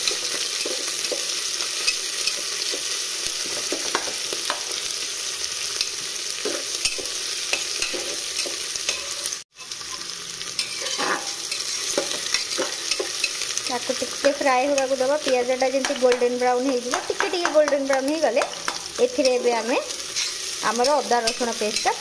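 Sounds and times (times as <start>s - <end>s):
onions sizzling in hot oil: 0.0s - 22.0s
metal spatula scraping a pot: 5.8s - 13.6s, 19.1s - 22.0s.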